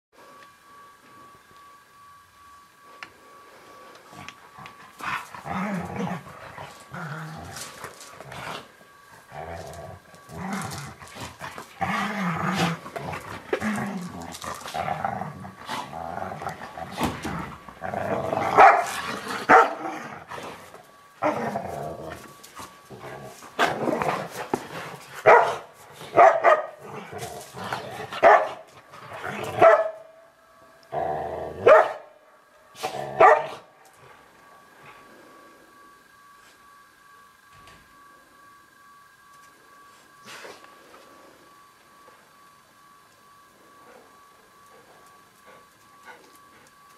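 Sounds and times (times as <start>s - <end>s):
dogs growling: 4.2s - 25.5s, 30.9s - 31.7s
dogs barking and snarling: 4.6s - 30.1s, 31.0s - 32.1s, 32.8s - 33.7s.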